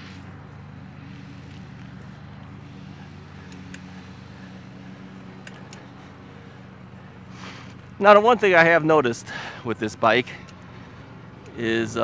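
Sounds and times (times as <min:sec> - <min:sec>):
electric bike hum: 0:00.0 - 0:12.0
light ticks: 0:03.4 - 0:03.9, 0:05.4 - 0:05.9.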